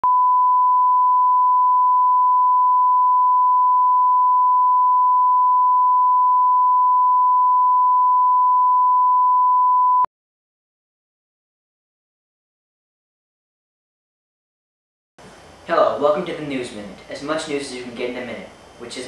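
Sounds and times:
high pitched sine test tone: 0.0 - 10.1.

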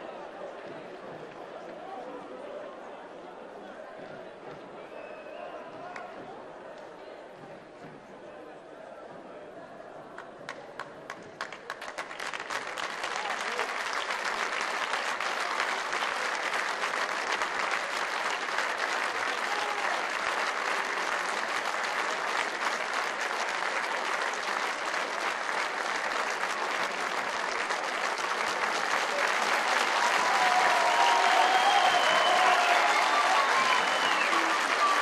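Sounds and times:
stadium crowd applauding: 10.1 - 35.0.

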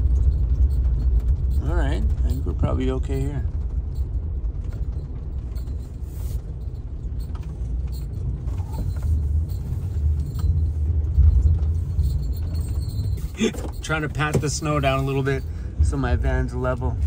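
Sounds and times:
van engine and tyres rumbling: 0.0 - 17.0.

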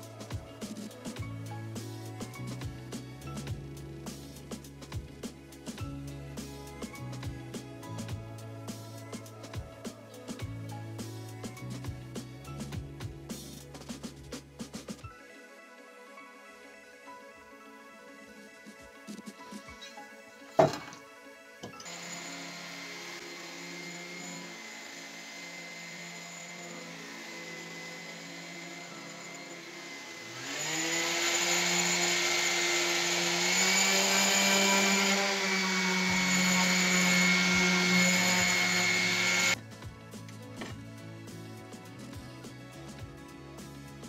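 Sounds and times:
orbital sander on metal: 21.8 - 39.6.

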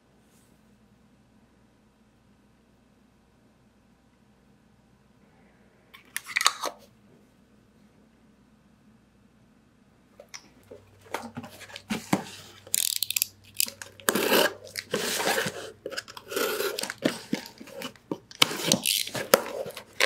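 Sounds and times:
cardboard knocking and rubbing: 11.1 - 12.4
box cutter slicing tape: 11.8 - 20.0.

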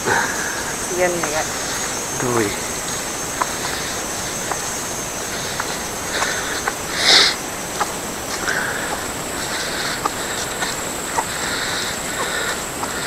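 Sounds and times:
high-pitched insect drone: 0.0 - 13.0
faint clicks: 1.1 - 13.0.

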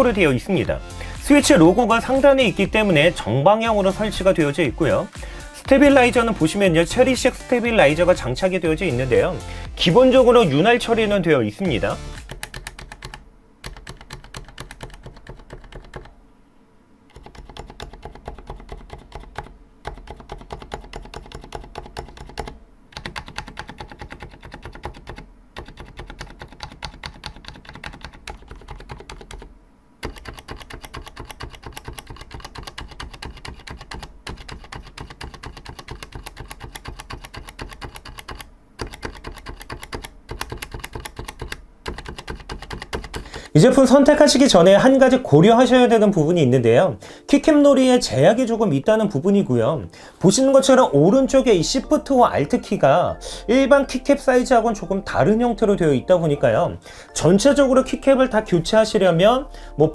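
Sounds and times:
typing on mechanical keyboard: 12.2 - 16.1, 17.1 - 43.4.

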